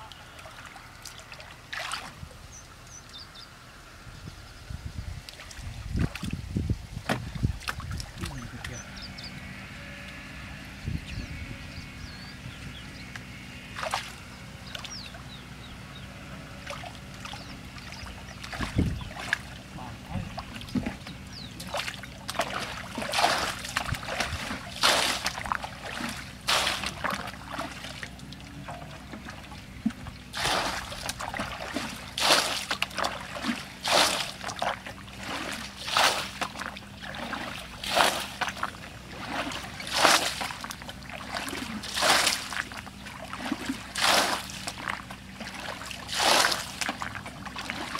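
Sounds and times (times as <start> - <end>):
faint water sloshing: 0.0 - 4.1, 5.1 - 10.8, 11.4 - 47.9
water splashing from bucket: 0.4 - 2.2, 13.8 - 15.0, 16.6 - 19.7, 20.3 - 47.9.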